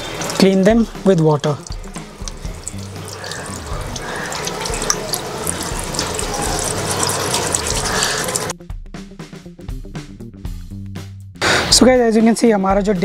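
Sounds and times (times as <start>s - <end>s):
tap water running into basin: 0.0s - 8.5s
background music: 0.0s - 13.0s.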